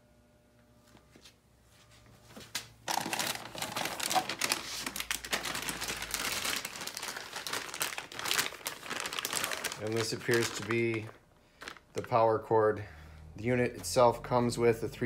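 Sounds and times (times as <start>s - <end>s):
plastic bag crinkling: 2.9s - 12.3s.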